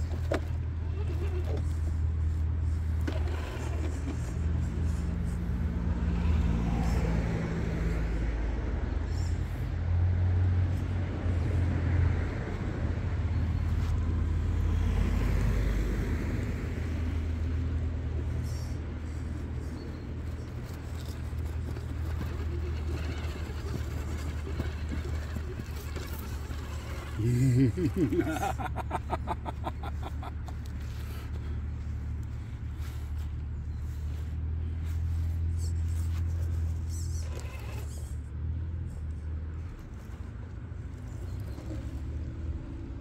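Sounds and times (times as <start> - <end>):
toy car electric motor whining: 0.0 - 7.1, 18.2 - 28.6, 35.9 - 38.2.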